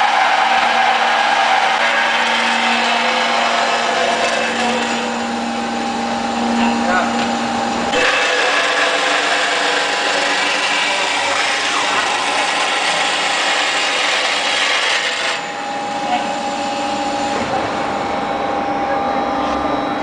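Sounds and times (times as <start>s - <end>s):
metal saw cutting steel bar: 0.0s - 5.2s, 7.9s - 15.6s
machine hum: 0.0s - 20.0s.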